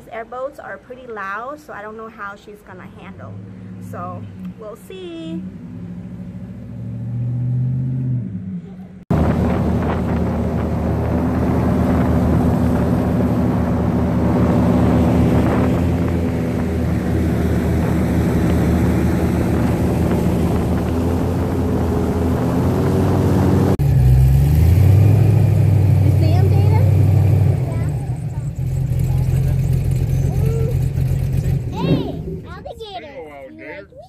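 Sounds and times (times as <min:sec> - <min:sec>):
airboat engine drone: 0:02.7 - 0:32.5
lower hum: 0:02.7 - 0:32.5
rush of wind: 0:09.1 - 0:23.8.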